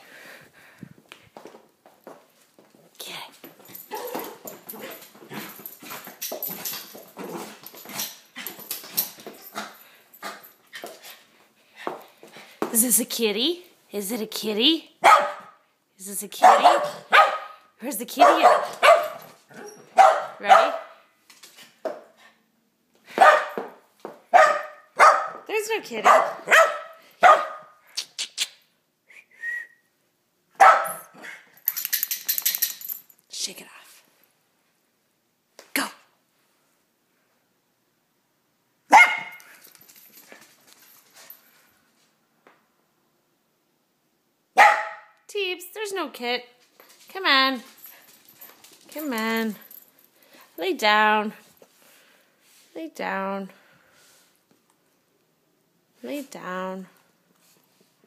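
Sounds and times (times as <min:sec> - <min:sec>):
puppy barking: 0:15.0 - 0:15.6, 0:16.4 - 0:21.0, 0:23.2 - 0:23.6, 0:24.3 - 0:25.4, 0:26.0 - 0:27.8, 0:30.6 - 0:31.1, 0:38.9 - 0:39.4, 0:44.6 - 0:45.1.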